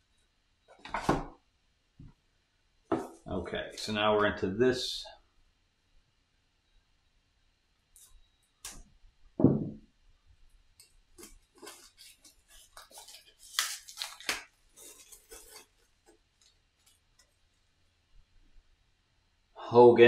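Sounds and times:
dull thud on table: 9.4s - 9.8s
cards rustling and clicking: 11.2s - 17.3s.

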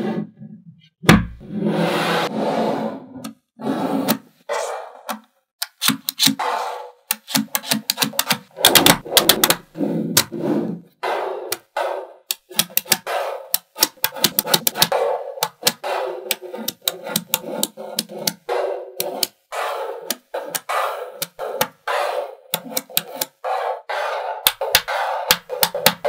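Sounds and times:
magnetic balls clicking together: 7.1s - 9.6s, 11.5s - 21.9s, 22.5s - 23.4s, 24.4s - 26.0s.

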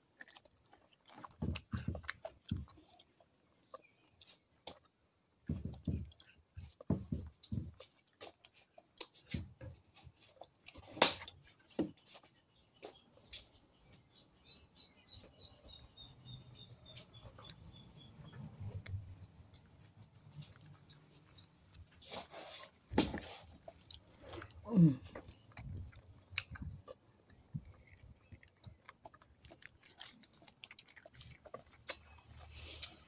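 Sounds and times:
chewing and crunching food: 0.0s - 33.0s.

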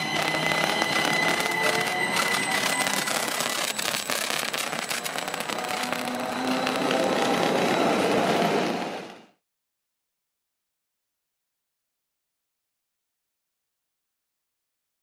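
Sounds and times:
sharp crackling clicks: 0.0s - 7.2s
electric railcar running past: 0.0s - 9.4s.

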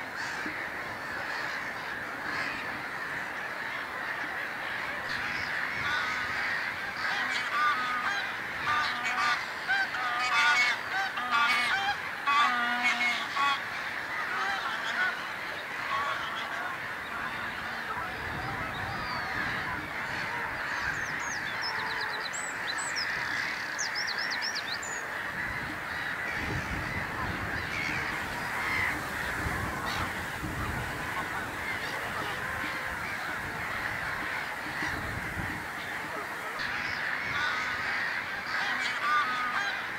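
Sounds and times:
waterbirds calling: 0.0s - 39.9s
bird honking calls: 0.1s - 39.9s
wind rumble on microphone: 17.1s - 22.0s, 25.2s - 38.0s.

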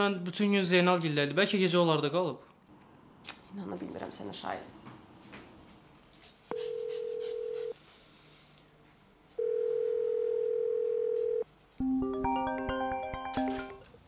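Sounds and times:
mobile phone ringtone melody: 6.5s - 7.7s, 9.4s - 13.8s
telephone ringback beeps: 9.4s - 11.4s.

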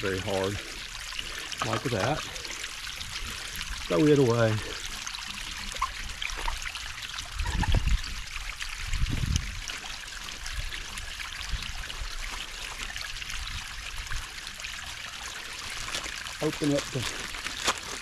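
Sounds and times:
water trickling and splashing: 0.0s - 18.0s.

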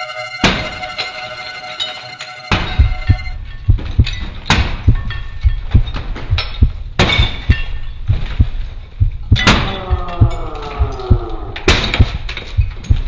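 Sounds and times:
heartbeat-like thumping pulse: 2.7s - 11.4s.

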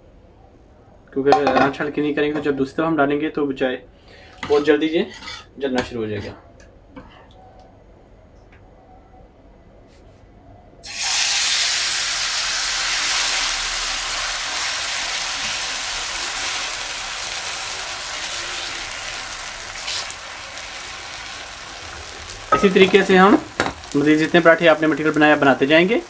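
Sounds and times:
batter sizzling in hot oil: 10.8s - 26.0s.

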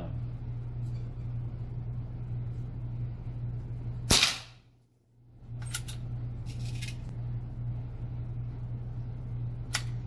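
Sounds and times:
steady low hum: 0.0s - 10.0s
air rifle shot: 4.1s - 4.6s.

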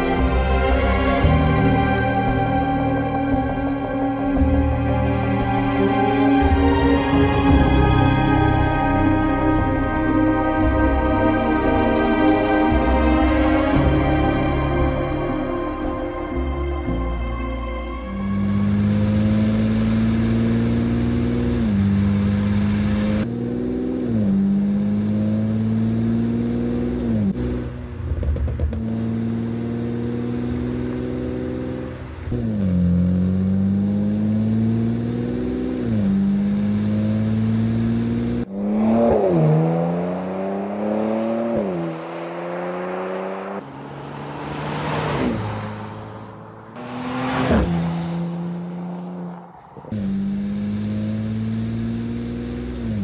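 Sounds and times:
car engine accelerating: 18.0s - 53.0s
car passing by: 36.9s - 52.2s.

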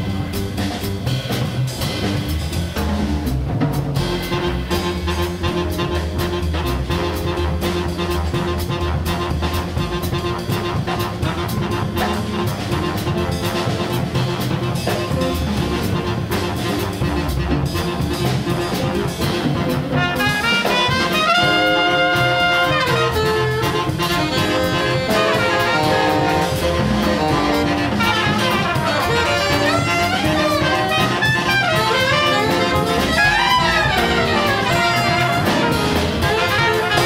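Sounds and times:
jazz ensemble playing: 0.0s - 37.0s
horns playing long notes: 20.0s - 37.0s.

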